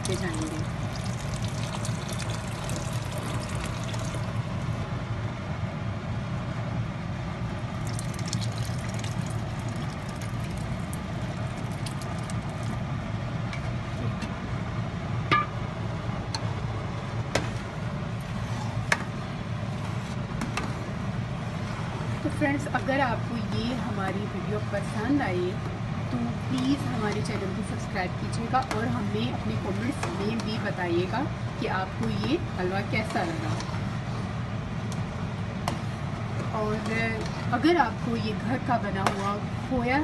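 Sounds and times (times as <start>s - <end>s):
milk pouring into pot: 0.0s - 4.6s, 7.8s - 12.8s
steady low hum: 0.0s - 40.0s.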